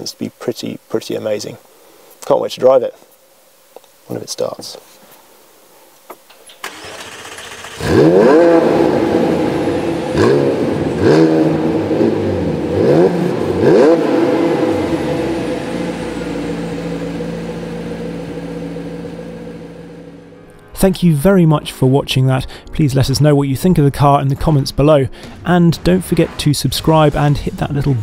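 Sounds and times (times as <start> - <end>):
car engine revving and idling: 6.7 - 20.4.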